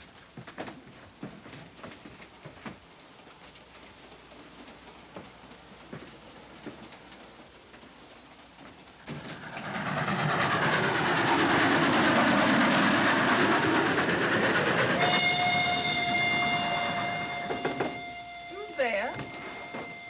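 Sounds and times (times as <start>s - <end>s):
train wheels clattering on rails: 0.0s - 20.0s
steam whistle blast: 12.9s - 20.0s.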